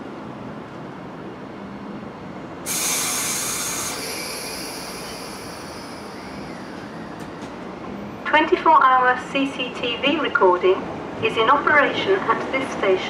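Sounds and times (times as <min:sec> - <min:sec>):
train humming: 0:02.5 - 0:13.0
compressed air hiss: 0:02.7 - 0:07.5.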